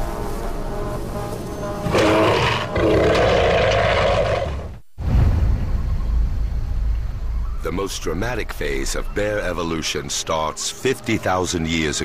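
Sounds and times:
bear roaring: 1.8s - 4.8s.

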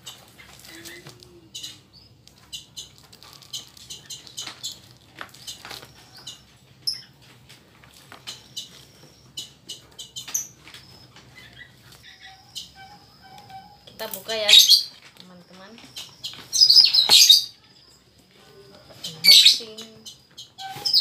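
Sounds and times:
plastic packaging crinkling: 0.2s - 1.4s, 2.2s - 6.3s.

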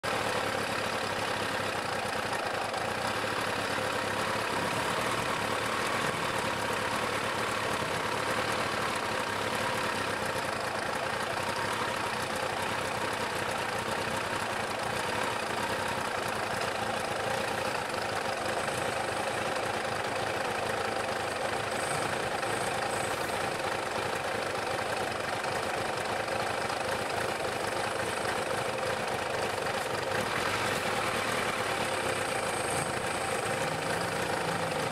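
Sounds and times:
motorcycle engine idling: 0.0s - 34.9s.

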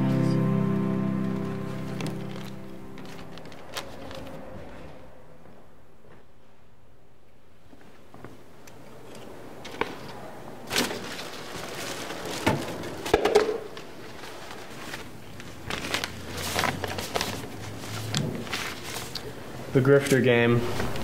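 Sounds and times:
footsteps: 1.2s - 6.7s
plastic bag rustling: 1.4s - 4.9s, 10.6s - 19.6s.

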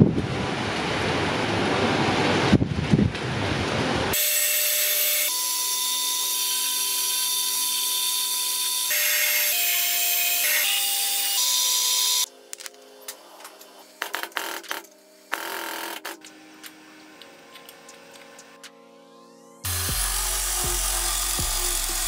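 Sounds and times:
metal lathe cutting: 4.2s - 12.3s, 19.7s - 22.0s.

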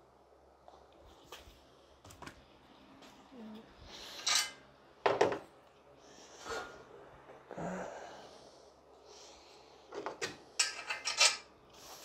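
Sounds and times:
person breathing softly: 5.9s - 10.0s.

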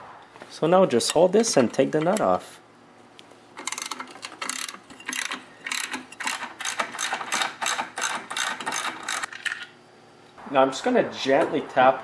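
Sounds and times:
ratchet wrench clicking: 3.6s - 9.3s.

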